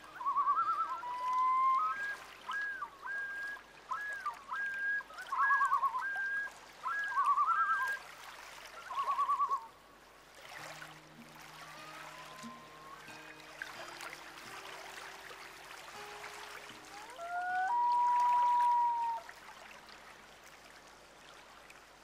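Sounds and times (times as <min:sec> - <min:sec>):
whistled notes and trills: 0:00.0 - 0:08.0, 0:08.8 - 0:09.7, 0:11.6 - 0:14.6, 0:16.0 - 0:19.2.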